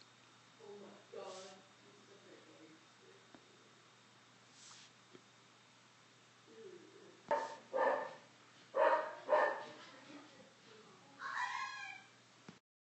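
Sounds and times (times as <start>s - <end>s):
dog barking: 7.3s - 9.8s
dog yelping: 8.8s - 9.6s.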